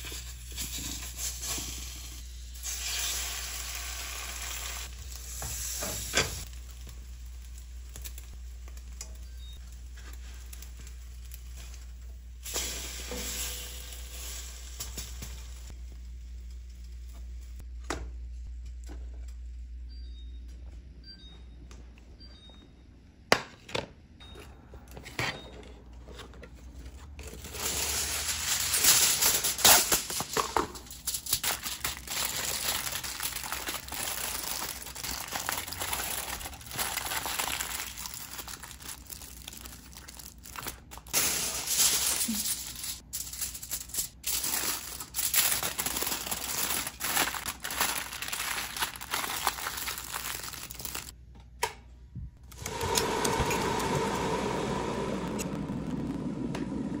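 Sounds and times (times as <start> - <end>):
aluminium foil crinkling: 27.2 - 51.2.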